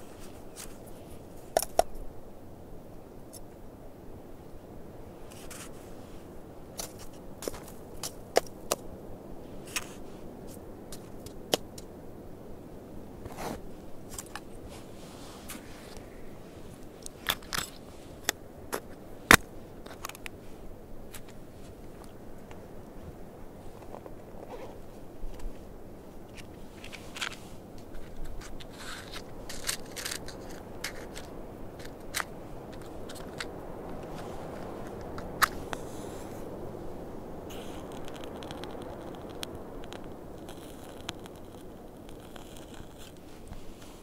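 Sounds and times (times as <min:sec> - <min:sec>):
crackles of items handled: 0:00.0 - 0:02.1, 0:05.2 - 0:12.0, 0:13.0 - 0:44.0
wind rumble: 0:00.0 - 0:44.0
snow crunching and scraping: 0:05.3 - 0:08.4, 0:09.5 - 0:11.2, 0:13.2 - 0:22.1, 0:23.0 - 0:39.4, 0:40.4 - 0:44.0.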